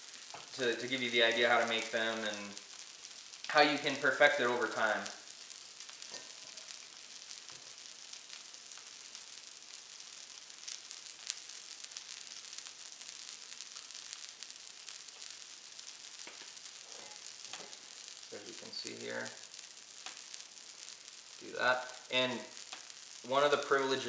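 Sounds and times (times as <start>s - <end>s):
food sizzling on a griddle: 0.0s - 24.0s
sharp pop: 16.3s - 17.8s.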